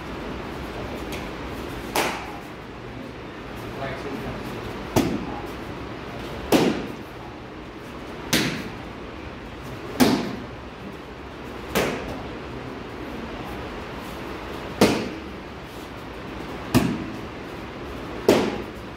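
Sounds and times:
kicks slapping a kick paddle: 0:06.5 - 0:07.0, 0:08.3 - 0:08.7, 0:10.0 - 0:10.4, 0:14.8 - 0:15.2, 0:16.7 - 0:17.2, 0:18.2 - 0:18.7.

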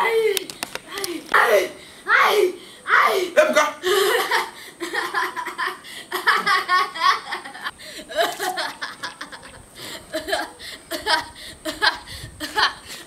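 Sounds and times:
person laughing: 0:03.8 - 0:12.9.

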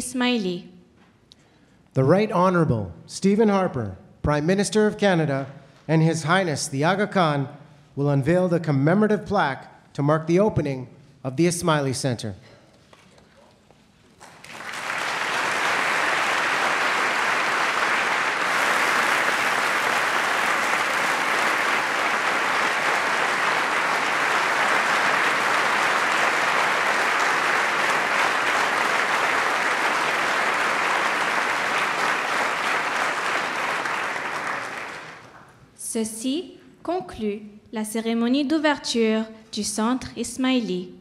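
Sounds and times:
audience applauding: 0:14.1 - 0:35.6.

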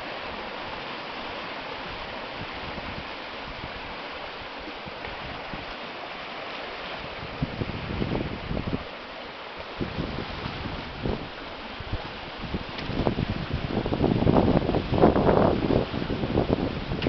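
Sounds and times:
seawater rushing and swirling: 0:00.0 - 0:17.0.

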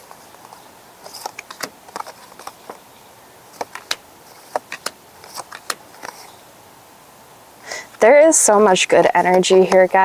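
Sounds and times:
cards clicking and tapping: 0:00.0 - 0:06.3, 0:09.1 - 0:10.0.

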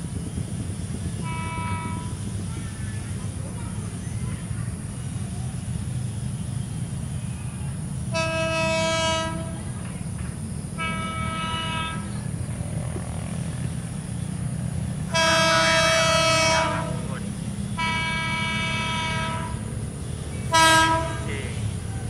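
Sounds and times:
low rumble of train: 0:00.0 - 0:22.0
train horn blasts: 0:01.2 - 0:02.5, 0:08.1 - 0:09.8, 0:10.8 - 0:13.4, 0:15.0 - 0:21.9.

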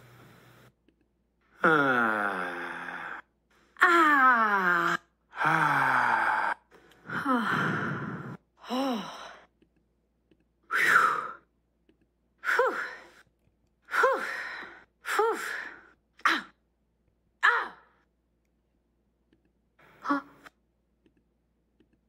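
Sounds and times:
person sighing: 0:01.6 - 0:03.2.

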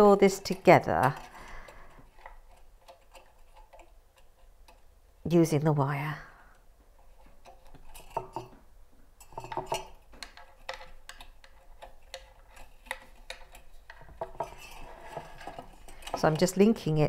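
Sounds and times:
wire metallic clicks and scrapes: 0:00.0 - 0:04.8, 0:09.2 - 0:17.0.

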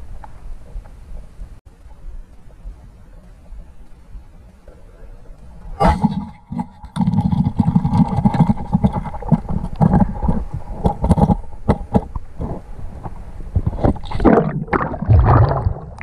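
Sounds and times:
churning water: 0:05.8 - 0:12.6, 0:13.6 - 0:16.0
sharp crack underwater: 0:05.8 - 0:16.0.

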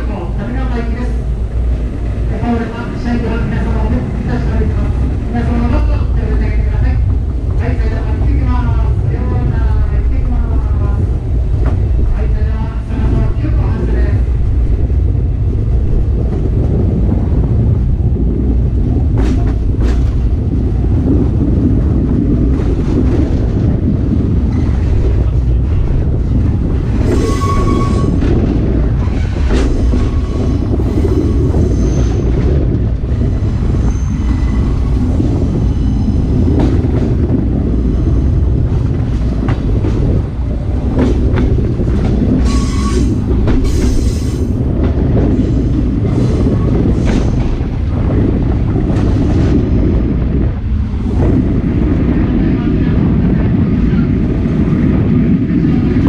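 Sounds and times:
train wheels rumbling: 0:00.0 - 0:56.0
wheel squeals: 0:27.0 - 0:28.2.

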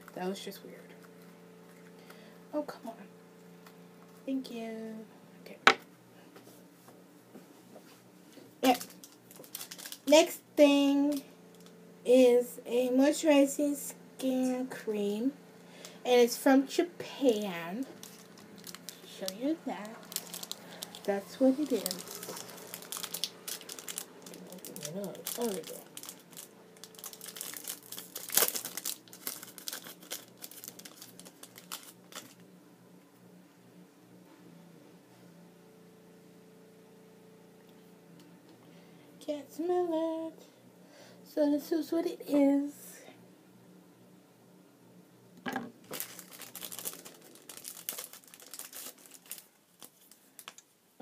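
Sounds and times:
packet crinkling and tearing: 0:08.6 - 0:10.3, 0:17.8 - 0:32.4, 0:45.8 - 0:50.6.

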